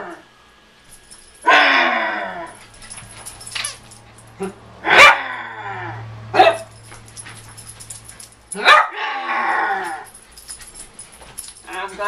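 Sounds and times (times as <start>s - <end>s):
puppy barking: 4.4s - 5.5s, 6.3s - 6.7s, 8.5s - 10.1s
puppy whining: 8.6s - 12.0s.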